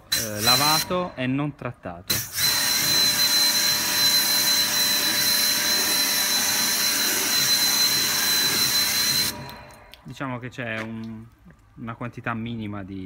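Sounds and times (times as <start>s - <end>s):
pressure washer whine: 2.1s - 10.0s.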